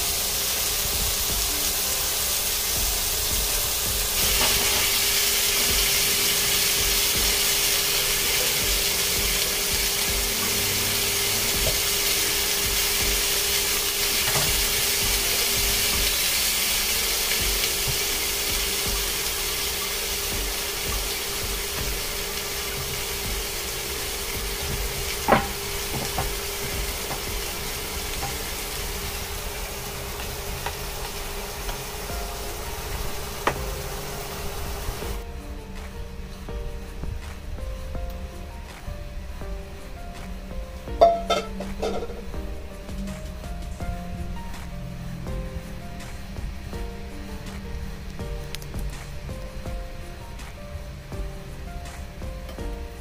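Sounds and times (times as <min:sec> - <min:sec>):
steak sizzling in butter: 0:00.0 - 0:35.2.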